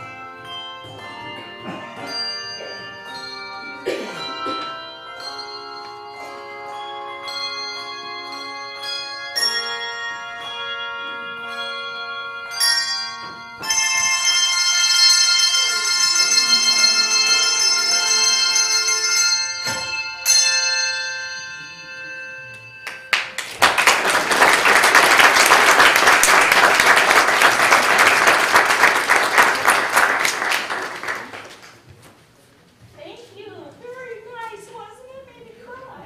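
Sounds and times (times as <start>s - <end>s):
handbell chord ringing: 0.0s - 23.4s
congregation applauding: 22.8s - 31.9s.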